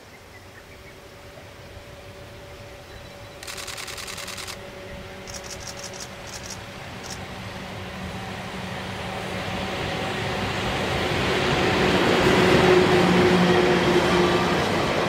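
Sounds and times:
electric locomotive hum and rumble: 0:00.2 - 0:15.0
rapid high clicking: 0:03.4 - 0:04.6, 0:05.3 - 0:07.2.

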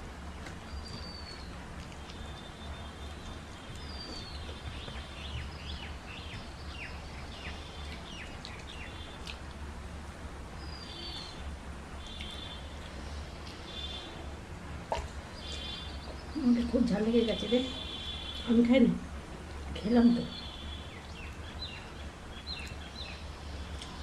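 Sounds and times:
steady low hum: 0:00.0 - 0:24.0
bird chirps: 0:00.7 - 0:09.4, 0:10.6 - 0:12.8, 0:15.4 - 0:18.6, 0:20.1 - 0:24.0.

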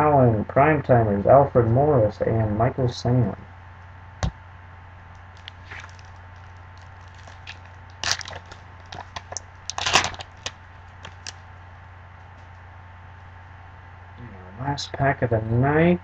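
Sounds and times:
foil wrapper crinkling: 0:05.3 - 0:11.4.

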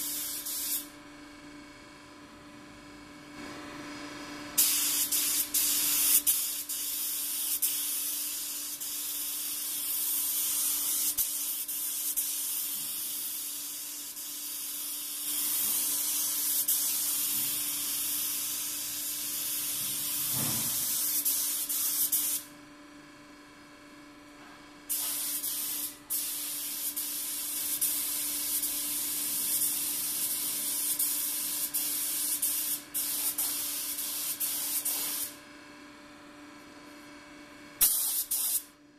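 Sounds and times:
spray gun hissing: 0:00.0 - 0:00.9, 0:04.6 - 0:19.6, 0:24.9 - 0:35.3, 0:37.8 - 0:38.6.

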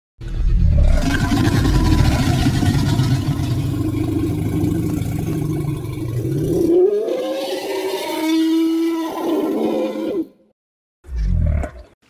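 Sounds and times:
deep rumbling creature growl: 0:00.2 - 0:10.3
rising creature call: 0:00.2 - 0:10.4.

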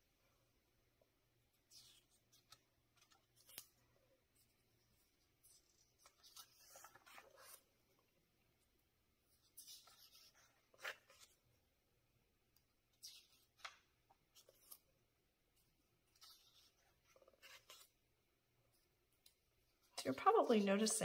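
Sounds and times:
book pages turning: 0:01.6 - 0:08.1, 0:09.3 - 0:11.6, 0:12.9 - 0:15.0, 0:15.6 - 0:18.0.

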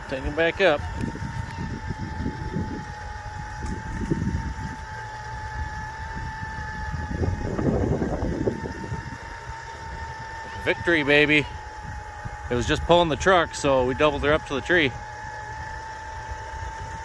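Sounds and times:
electric winch whining: 0:00.0 - 0:17.0.

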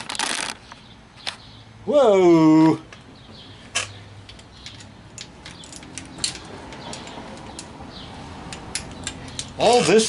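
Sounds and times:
clicks and taps of metal parts: 0:03.7 - 0:07.8, 0:08.4 - 0:10.0.

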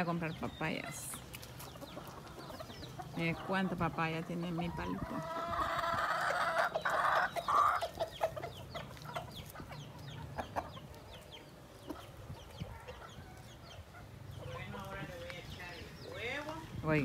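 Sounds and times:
chickens clucking: 0:00.0 - 0:17.0
chicks peeping: 0:00.0 - 0:17.0
loud chicken call: 0:05.0 - 0:08.2.

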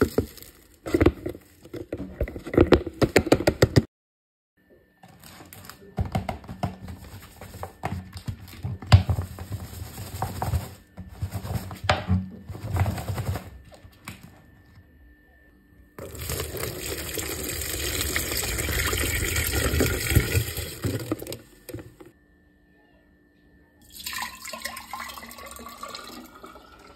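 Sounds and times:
plastic bottle crackling: 0:00.0 - 0:03.8, 0:16.0 - 0:22.1
water pouring into bottle: 0:16.0 - 0:21.4, 0:23.9 - 0:26.9.

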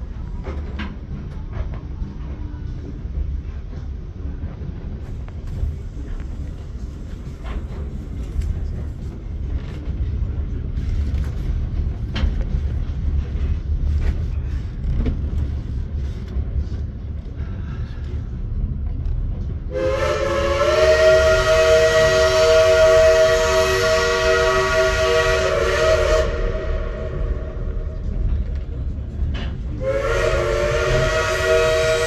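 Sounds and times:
train clicks and clanks: 0:00.0 - 0:32.0
train rumbling: 0:00.0 - 0:32.0
locomotive chime whistle: 0:19.7 - 0:27.8, 0:29.8 - 0:32.0.

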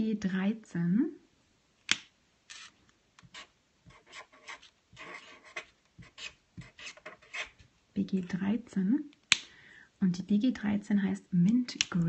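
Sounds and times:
marker scratching on paper: 0:02.5 - 0:07.6.

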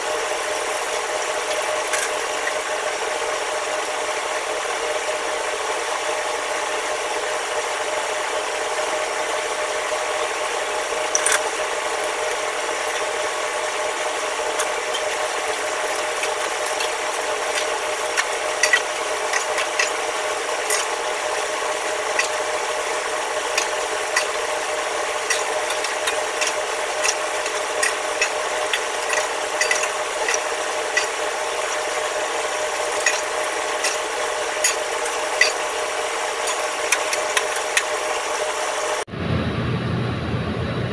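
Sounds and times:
metal clicks and scrapes: 0:00.0 - 0:02.6, 0:11.1 - 0:11.6, 0:14.6 - 0:20.0, 0:25.2 - 0:31.8, 0:33.0 - 0:35.6
mechanical hum: 0:00.0 - 0:40.9.

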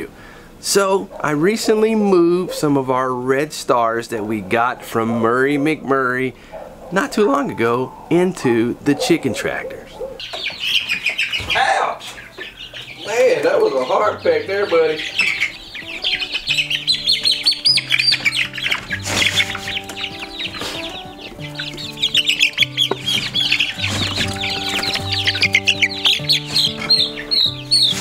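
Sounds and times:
chicks peeping: 0:00.8 - 0:28.0
background music with low notes: 0:12.6 - 0:28.0.

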